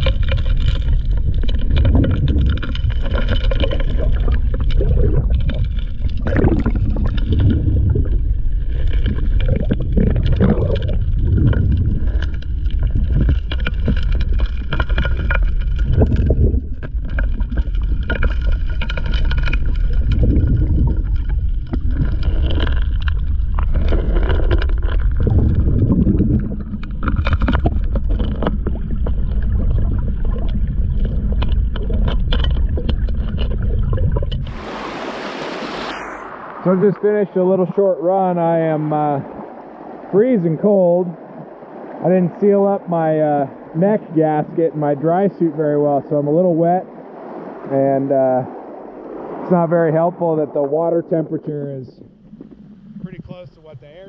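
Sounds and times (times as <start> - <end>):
rocks knocking and clattering: 0.0 - 34.6
muffled underwater rumble: 0.0 - 54.0
engine drone: 34.4 - 37.8.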